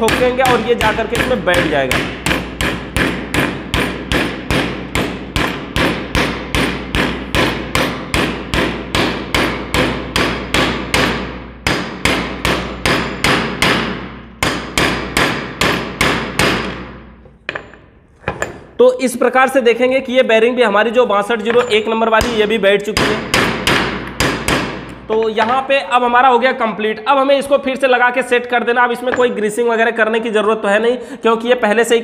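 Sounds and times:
small hammer tapping metal: 0.0s - 13.8s, 21.4s - 25.7s, 29.0s - 29.4s.

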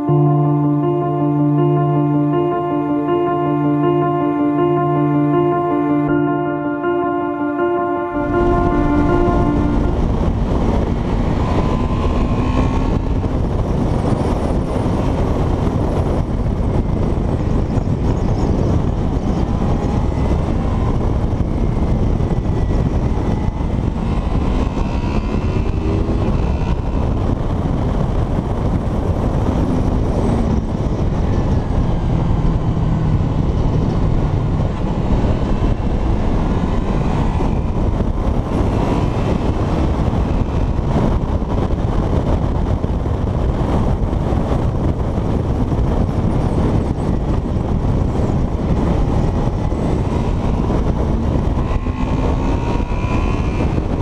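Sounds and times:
wind rush: 0.0s - 54.0s
motorcycle engine revving: 8.7s - 17.9s, 18.7s - 43.5s, 47.1s - 54.0s.

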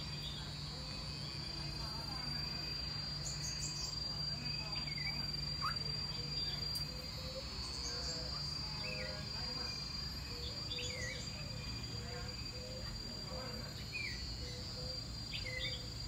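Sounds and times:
high-pitched insect drone: 0.0s - 16.0s
bird chirps: 3.2s - 9.8s.

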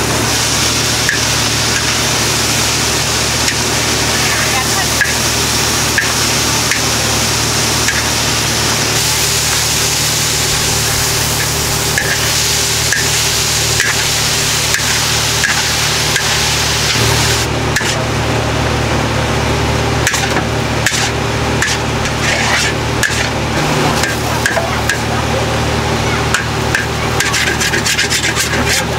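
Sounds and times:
noodles sizzling in a wok: 0.0s - 18.3s, 19.3s - 28.9s
gas burner rushing: 0.0s - 28.9s
metal spatula scraping a wok: 9.0s - 18.0s, 20.0s - 25.1s, 26.3s - 28.9s.

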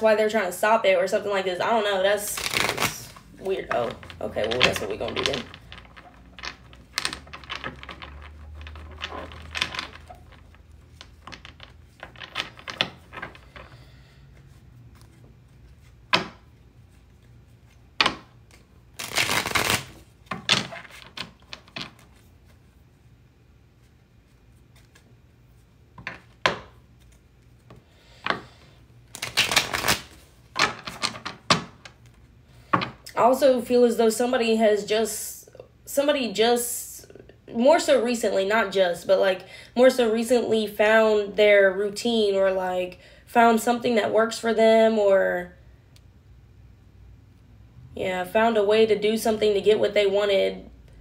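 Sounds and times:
cards sliding: 18.5s - 20.1s, 29.1s - 30.2s.

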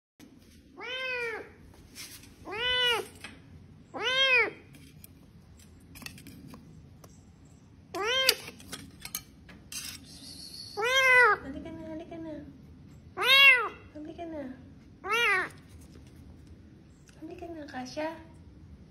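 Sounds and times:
cat meowing: 0.8s - 1.6s, 2.4s - 3.2s, 3.9s - 4.6s, 8.0s - 8.4s, 10.8s - 11.4s, 13.2s - 13.9s, 15.0s - 15.6s.

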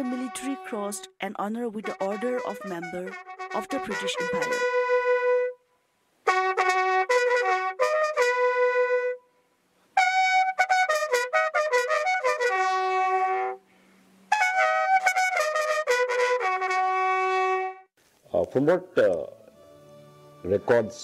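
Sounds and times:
solo brass horn call: 1.8s - 9.3s, 10.0s - 13.6s, 14.3s - 17.9s.

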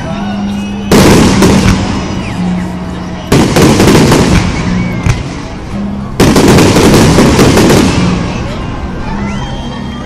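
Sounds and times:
fireworks bursting: 0.9s - 5.6s, 6.2s - 8.7s
fireworks crackling: 0.9s - 8.8s.

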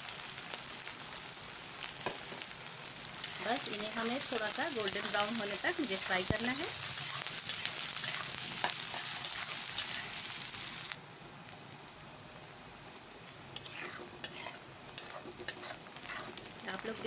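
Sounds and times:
onions sizzling in hot oil: 0.0s - 11.0s, 11.6s - 17.0s
metal spatula stirring: 3.2s - 10.2s, 13.6s - 16.6s.

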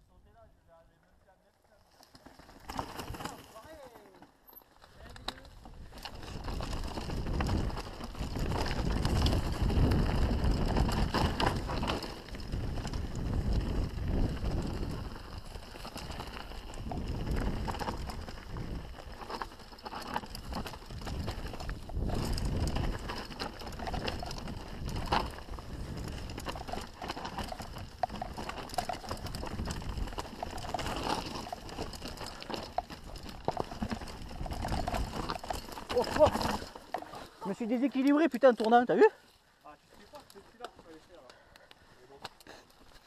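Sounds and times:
bike clicks and rattles: 1.6s - 39.1s, 39.8s - 43.0s
tyres rumbling over dirt and stones: 1.9s - 38.7s
wind on microphone: 5.7s - 19.4s, 20.2s - 32.4s.

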